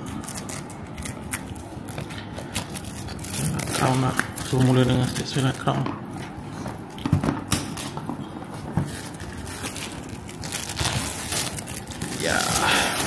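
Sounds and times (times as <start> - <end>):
plastic shrink wrap crinkling: 0.0 - 5.9, 8.6 - 13.0.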